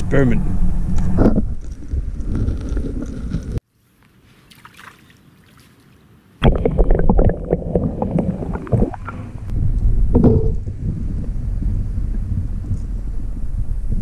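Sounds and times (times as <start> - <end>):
muffled underwater rumbling: 0.1 - 3.6, 6.4 - 14.0.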